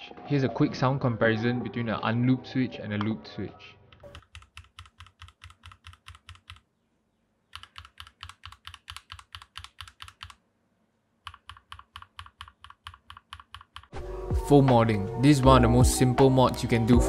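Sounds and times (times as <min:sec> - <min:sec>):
mechanical keyboard switches clacking: 0:07.5 - 0:10.4, 0:11.3 - 0:13.9.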